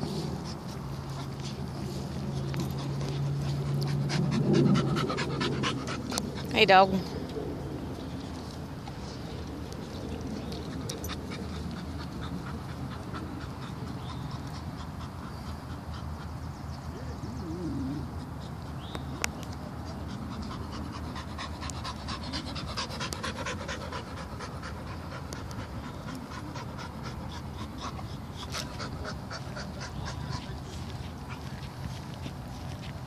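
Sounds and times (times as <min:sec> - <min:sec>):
dog panting: 0:00.0 - 0:07.0, 0:09.2 - 0:33.0.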